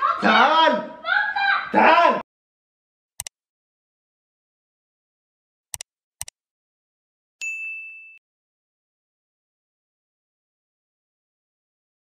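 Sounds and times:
short clicks: 0:03.2 - 0:03.4, 0:05.7 - 0:06.4.

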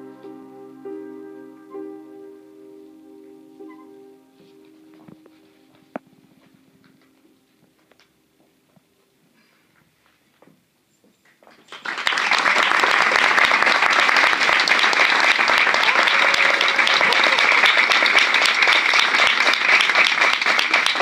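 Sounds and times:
audience applauding: 0:11.5 - 0:21.0.

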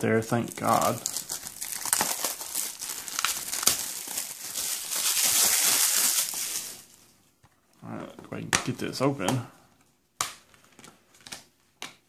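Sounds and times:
plastic shrink wrap crinkling: 0:00.0 - 0:07.2.

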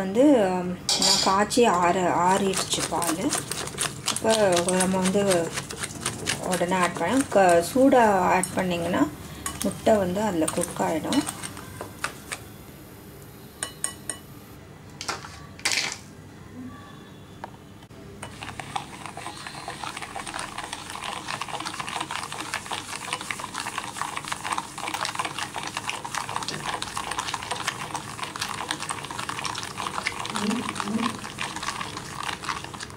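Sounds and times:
whisk clattering in ceramic bowl: 0:02.3 - 0:08.7, 0:18.2 - 0:32.9.

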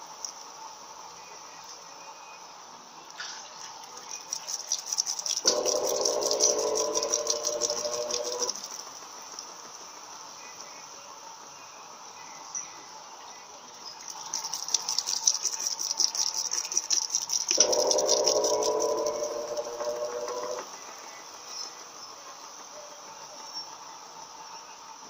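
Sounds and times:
water spray patter: 0:03.1 - 0:10.8, 0:13.7 - 0:22.0
washing machine motor whine: 0:03.6 - 0:25.0.

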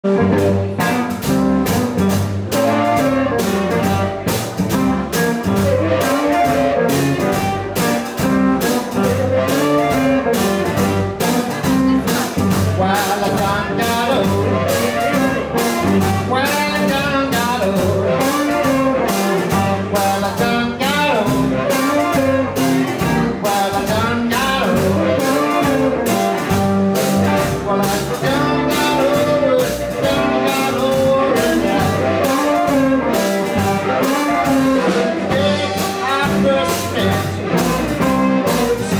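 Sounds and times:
drums keeping a steady beat: 0:00.0 - 0:38.9
electric guitar: 0:00.0 - 0:38.9
upright bass: 0:00.0 - 0:38.9.

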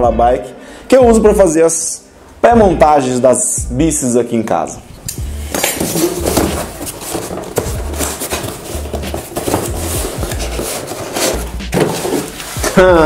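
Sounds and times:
cardboard scraping and rustling: 0:05.5 - 0:13.0.

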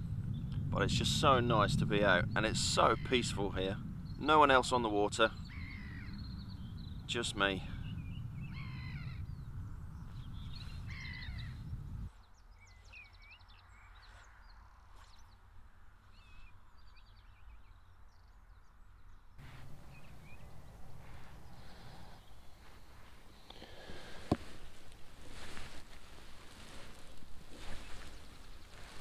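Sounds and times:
wind rumble on microphone: 0:00.0 - 0:29.0
small birds chirping and trilling: 0:00.2 - 0:15.4, 0:16.0 - 0:29.0
crow cawing: 0:05.5 - 0:06.1.

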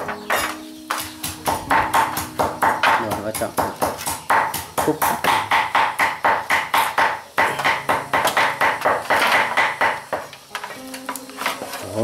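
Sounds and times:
knife chopping on cutting board: 0:00.3 - 0:10.3.

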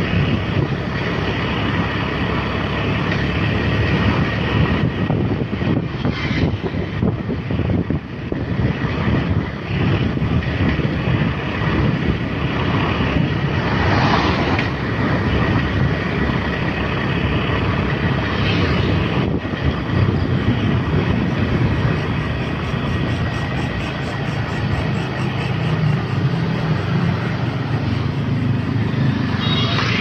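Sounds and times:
traffic rumble: 0:00.0 - 0:30.0
wind buffeting microphone: 0:03.7 - 0:25.2
vehicle passing: 0:11.6 - 0:30.0.

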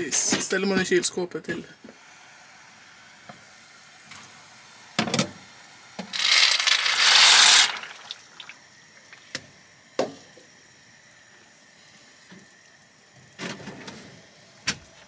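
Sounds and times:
dry pasta pouring into pot: 0:06.1 - 0:08.6.

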